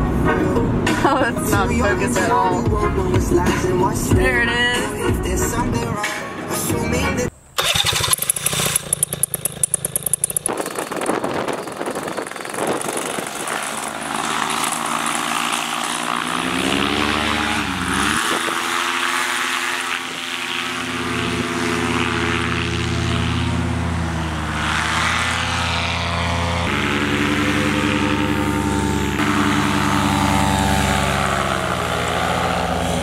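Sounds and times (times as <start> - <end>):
paramotor engine and propeller: 7.6 - 33.0.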